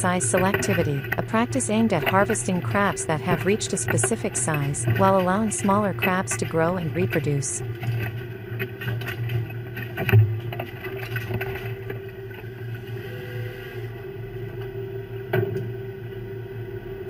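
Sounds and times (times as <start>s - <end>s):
boat engine droning: 0.0s - 17.0s
crabs and gear clattering on deck: 6.8s - 12.4s.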